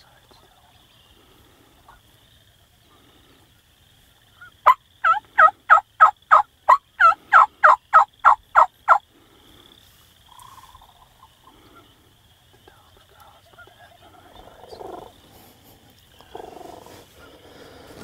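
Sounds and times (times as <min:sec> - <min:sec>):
turkey yelps: 0:04.4 - 0:09.0.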